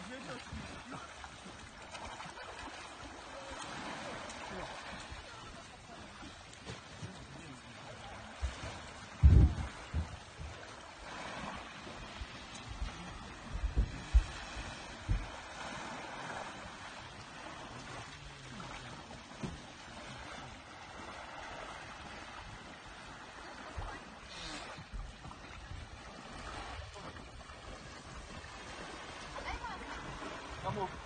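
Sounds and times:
sea water lapping: 0.0s - 31.0s
sharp low thumps: 9.2s - 10.6s.

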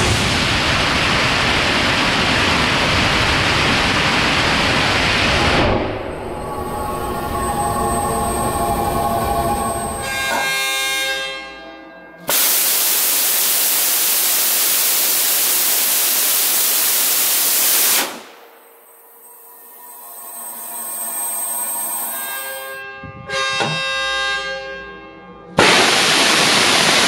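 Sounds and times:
rocket engine roaring: 0.0s - 10.4s
background music: 5.8s - 12.3s.

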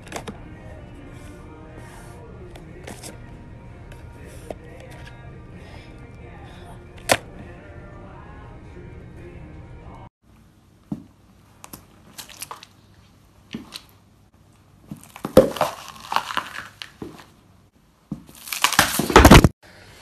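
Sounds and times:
shoe crushing vegetables: 14.8s - 17.4s, 18.1s - 19.5s.

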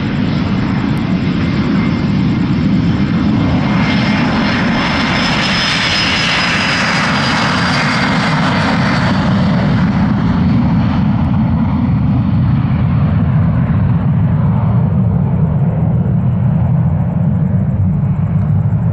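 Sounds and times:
jet engines rumbling and whining: 0.0s - 18.9s.

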